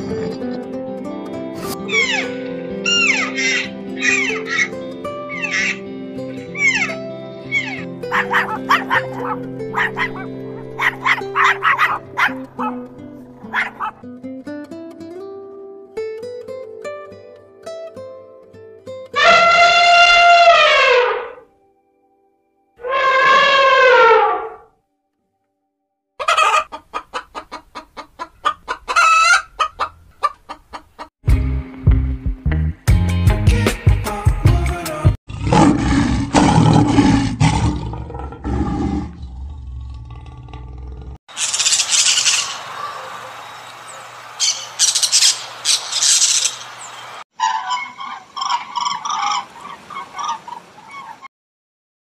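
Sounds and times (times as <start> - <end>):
egret croaking calls: 1.8 - 14.0, 41.3 - 43.8, 44.4 - 51.3
toucan squawking: 1.8 - 14.0, 26.2 - 31.1, 41.3 - 43.1, 44.4 - 46.8, 47.4 - 51.3
chickens clucking: 5.3 - 5.8, 6.6 - 12.8, 13.4 - 14.0, 26.2 - 31.1, 44.4 - 51.3
lion roaring: 35.3 - 41.2.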